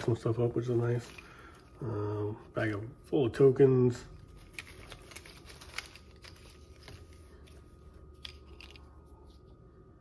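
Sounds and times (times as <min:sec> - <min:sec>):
game tokens rustling and clicking: 0:04.4 - 0:09.0.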